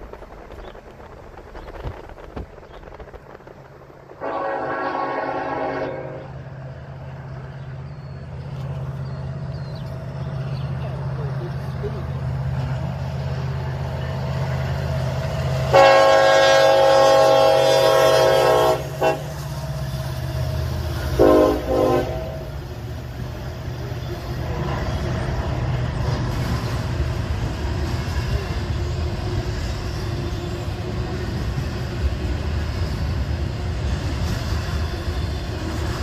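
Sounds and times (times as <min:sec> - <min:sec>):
freight train rumbling past: 0:00.0 - 0:36.0
locomotive air horn: 0:04.2 - 0:06.3, 0:15.7 - 0:19.4, 0:21.1 - 0:22.6.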